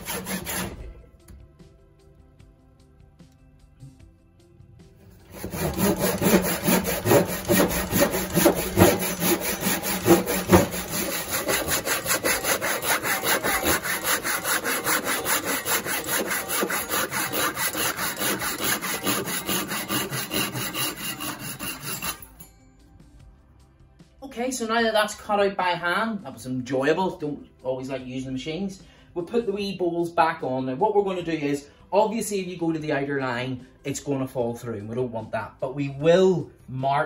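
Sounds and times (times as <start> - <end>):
hand saw cutting wood: 0.0 - 1.0, 5.2 - 22.4.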